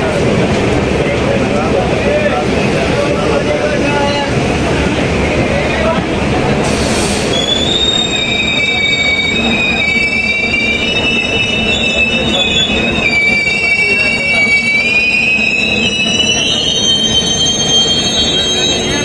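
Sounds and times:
low rumble of moving train: 0.0s - 19.0s
train wheels squealing on rails: 6.6s - 19.0s.

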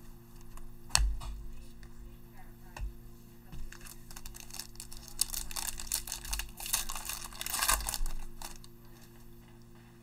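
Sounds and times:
foil wrapper tearing and crinkling: 3.7s - 8.8s.

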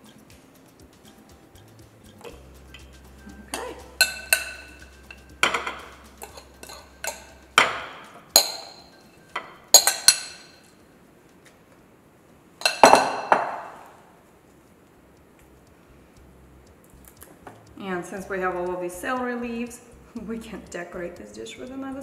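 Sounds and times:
spoon clinking against glass bowl: 2.7s - 10.7s, 12.6s - 13.2s.

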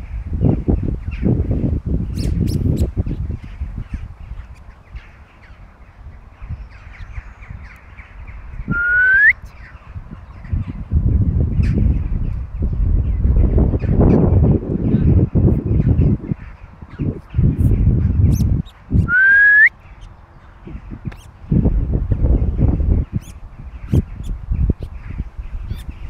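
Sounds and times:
birds calling: 0.0s - 26.0s
wind rumble on microphone: 0.0s - 26.0s
rising whistle: 8.7s - 9.4s, 19.0s - 19.7s.

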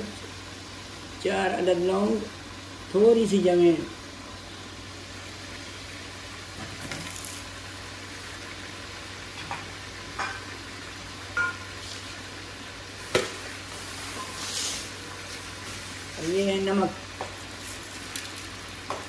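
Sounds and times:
meat sizzling in hot oil: 0.0s - 19.0s.

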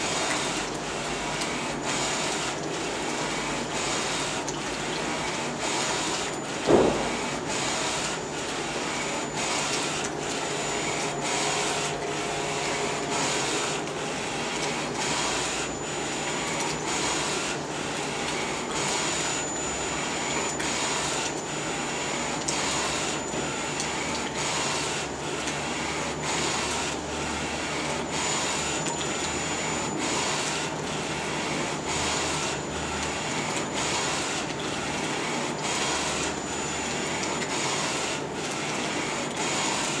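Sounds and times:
printer carriage sweeping: 5.7s - 17.6s
loud thump: 6.7s - 7.2s.

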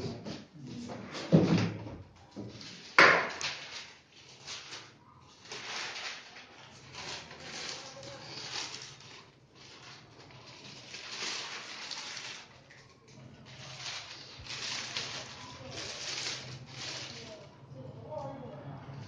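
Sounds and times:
plastic wrapping crinkling: 2.2s - 17.8s.

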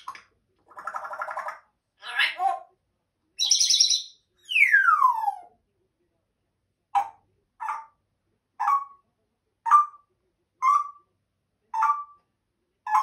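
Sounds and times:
parrot calling: 0.8s - 2.7s, 8.6s - 9.0s, 11.7s - 12.2s.

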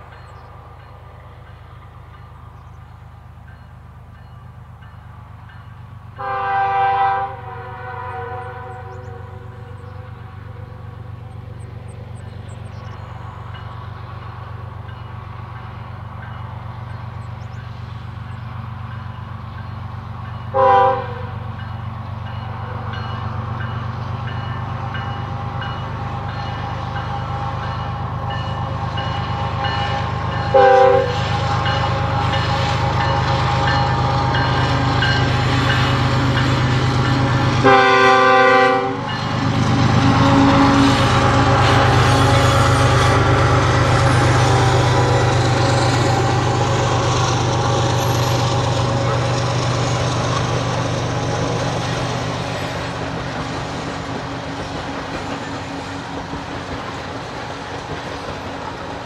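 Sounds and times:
diesel locomotive engine rumble: 0.0s - 59.0s
locomotive air horn: 6.2s - 10.9s, 20.5s - 21.5s, 29.5s - 33.0s, 37.2s - 39.2s, 39.8s - 45.4s.

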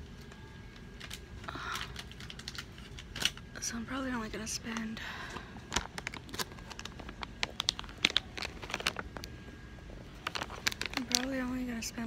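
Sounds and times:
plastic packaging crinkling: 0.9s - 3.5s, 5.6s - 11.7s.

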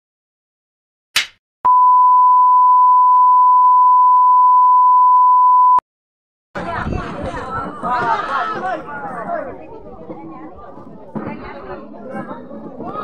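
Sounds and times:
clapperboard clap: 1.2s - 1.4s
test-tone beep: 1.7s - 5.8s.

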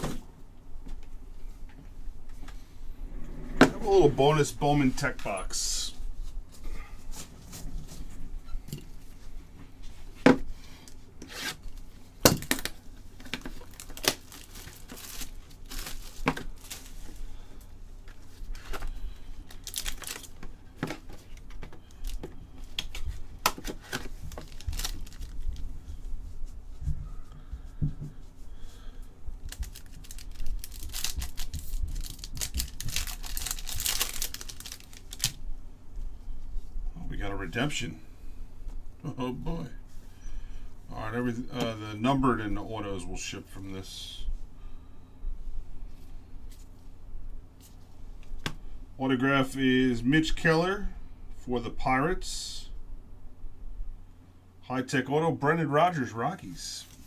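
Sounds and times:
foil pack tearing and crinkling: 11.5s - 17.0s, 18.5s - 20.4s, 22.9s - 25.6s, 29.5s - 35.4s.

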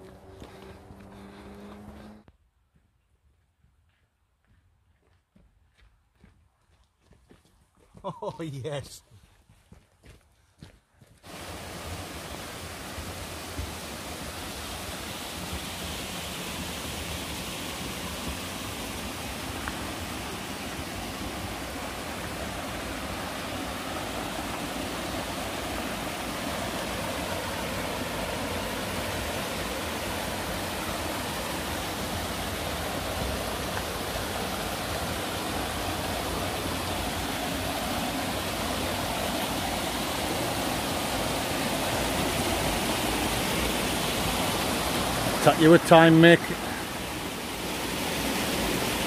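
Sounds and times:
stream rushing over boulders: 11.2s - 49.0s.

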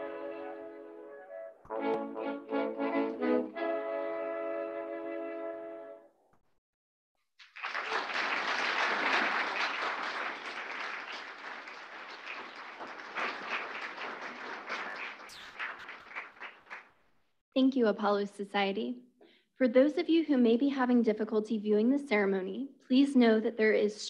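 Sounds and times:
audience applauding: 7.4s - 17.2s.

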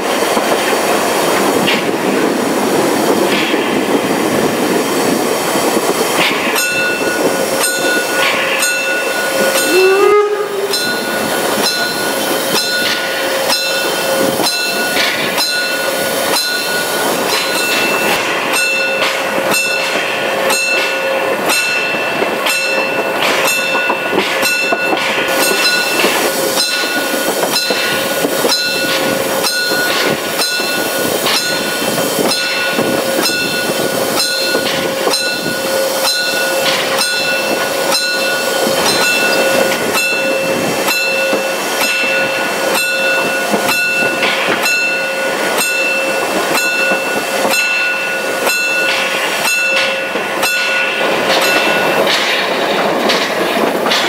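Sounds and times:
rail running noise: 0.0s - 54.0s
steam locomotive chuffing: 0.0s - 54.0s
ringing high tone: 6.6s - 18.1s.

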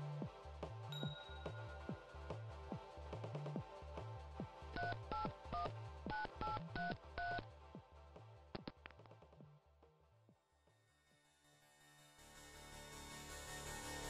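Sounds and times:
low background music: 0.0s - 10.7s
touch-tone keypad beeps: 4.8s - 7.4s.

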